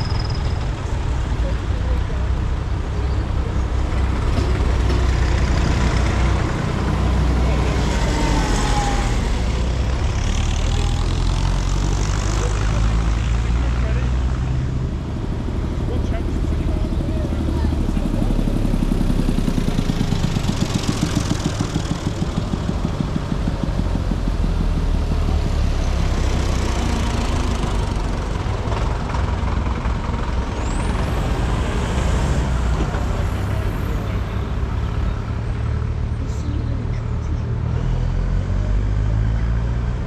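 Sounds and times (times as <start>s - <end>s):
vehicles passing by: 0.0s - 40.0s
low engine chug: 15.8s - 25.4s.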